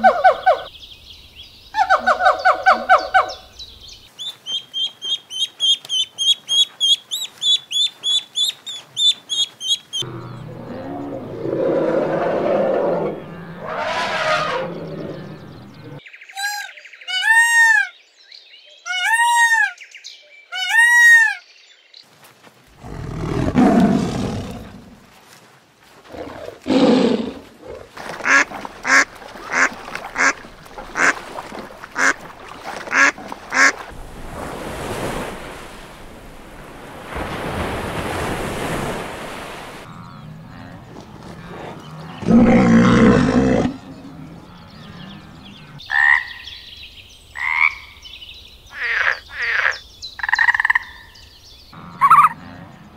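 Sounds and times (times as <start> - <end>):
rising and falling pitched calls: 4.4 - 16.0
geese honking: 28.2 - 31.3, 31.9 - 32.3, 32.9 - 33.8, 51.8 - 52.5.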